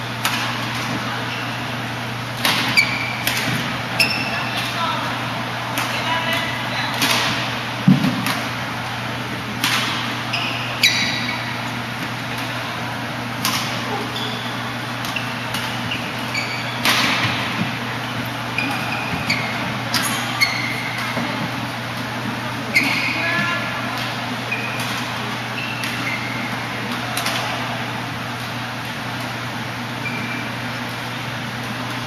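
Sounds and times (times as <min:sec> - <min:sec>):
shoes squeaking on floor: 0:02.7 - 0:03.2, 0:04.0 - 0:04.6, 0:10.2 - 0:11.7, 0:13.8 - 0:17.4, 0:18.0 - 0:21.0, 0:22.7 - 0:23.6, 0:24.5 - 0:24.9, 0:25.5 - 0:26.6, 0:30.0 - 0:30.5
rackets striking shuttlecock: 0:09.6 - 0:11.3, 0:13.4 - 0:14.2.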